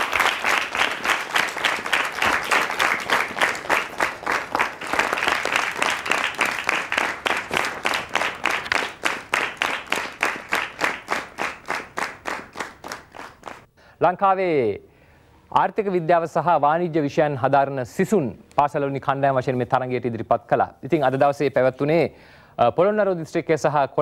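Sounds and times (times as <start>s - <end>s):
audience applause: 0.0s - 13.7s.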